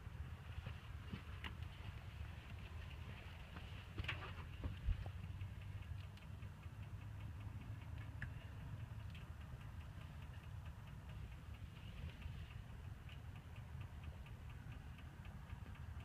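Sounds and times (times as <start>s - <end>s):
car engine idling: 0.0s - 16.0s
fast even ticking: 5.0s - 16.0s.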